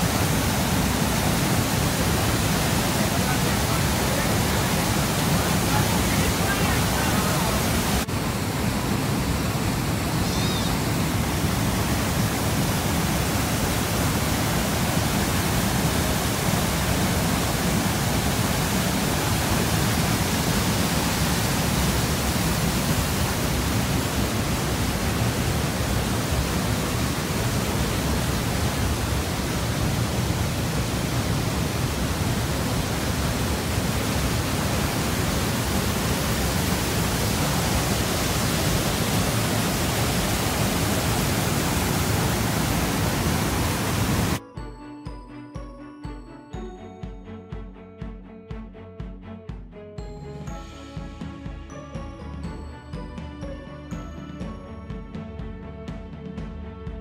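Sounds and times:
waterfall and rapids rushing: 0.0s - 44.4s.

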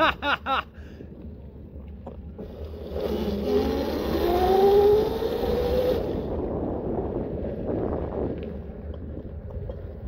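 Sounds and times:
wind and tyre noise: 0.0s - 10.0s
electric bike motor whining: 2.4s - 6.9s.

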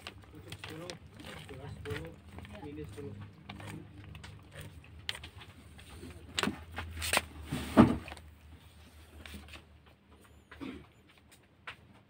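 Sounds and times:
newspaper rustling: 0.0s - 9.6s.

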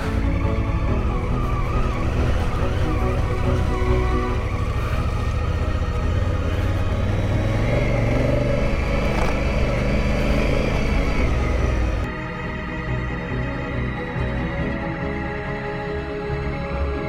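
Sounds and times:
motorcycle engine running: 0.0s - 12.1s.

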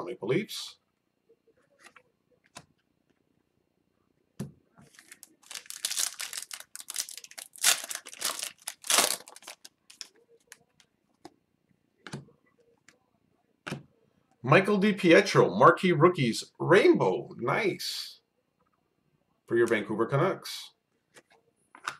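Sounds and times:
foil wrapper tearing and crinkling: 5.0s - 10.1s.

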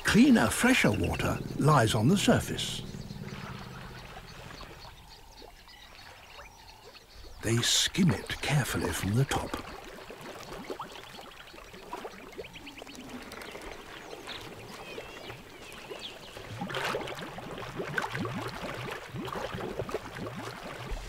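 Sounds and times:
faint chirping calls: 0.0s - 16.5s
water trickling and splashing: 0.0s - 21.0s.

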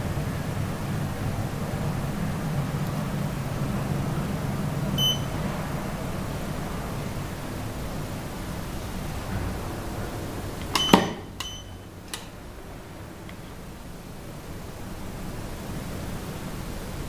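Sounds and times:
steady hiss: 0.0s - 17.0s
short electronic beeps: 5.0s - 5.4s, 10.8s - 11.9s.

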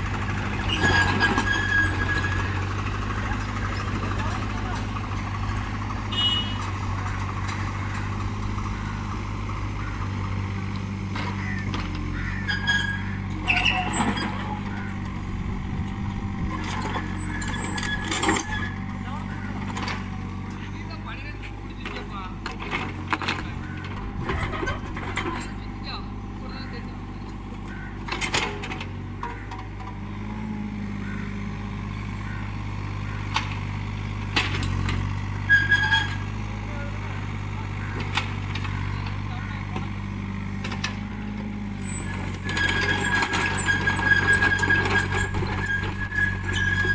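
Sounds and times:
excavator diesel engine running: 0.0s - 46.9s
metallic clinks and squeaks: 0.6s - 2.6s, 12.4s - 14.9s, 16.5s - 18.9s, 23.2s - 25.7s, 35.4s - 36.3s, 41.8s - 46.9s.

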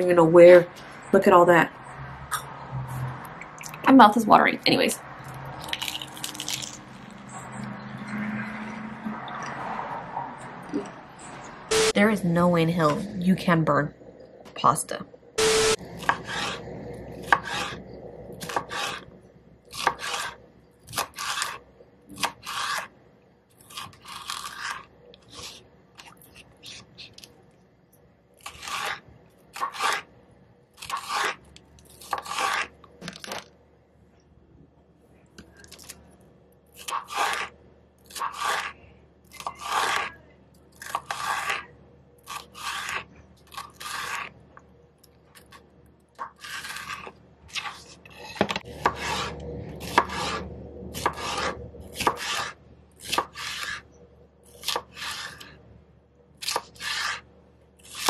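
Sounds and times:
knife slicing peppers: 16.0s - 16.6s, 17.2s - 17.8s, 18.4s - 19.1s, 19.7s - 22.9s, 28.4s - 30.1s, 30.8s - 33.3s, 36.8s - 40.2s, 40.8s - 44.3s, 46.2s - 53.8s, 54.5s - 55.6s, 56.4s - 58.0s.

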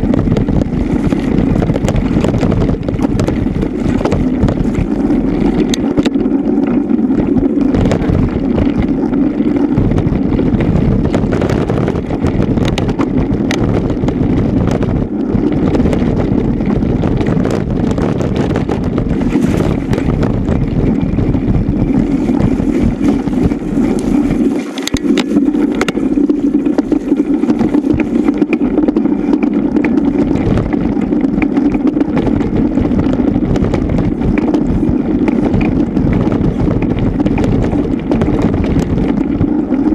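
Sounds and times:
bike knocks and rattles: 0.0s - 39.9s
tyre rumble: 0.0s - 39.9s
wind rushing on microphone: 0.0s - 39.9s.

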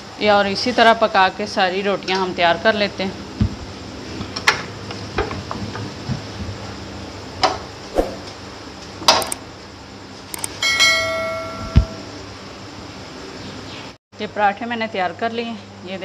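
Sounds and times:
short ringing chime: 10.6s - 12.1s.

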